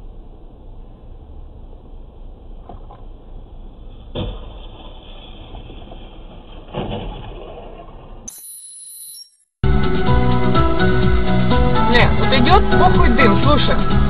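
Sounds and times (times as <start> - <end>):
engine and road rumble: 0.0 - 8.3
car thumps: 3.9 - 8.0.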